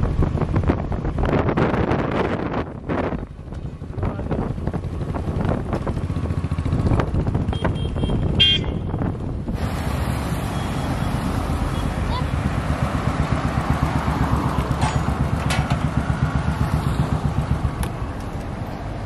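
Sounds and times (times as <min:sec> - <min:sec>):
motorcycle engine riding by: 0:04.4 - 0:08.8, 0:10.1 - 0:18.4
vehicle horn toot: 0:07.5 - 0:09.0.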